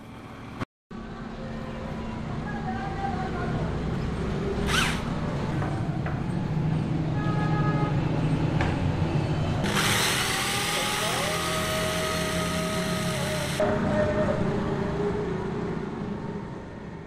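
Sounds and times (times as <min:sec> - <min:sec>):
electric drill whining: 0:04.7 - 0:05.1, 0:09.6 - 0:13.6.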